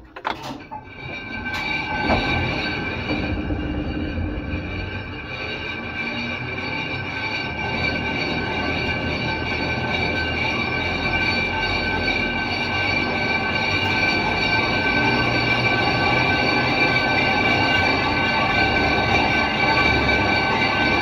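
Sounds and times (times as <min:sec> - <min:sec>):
lock gate metallic squeal: 0:00.0 - 0:21.0
low rumble: 0:01.8 - 0:06.6.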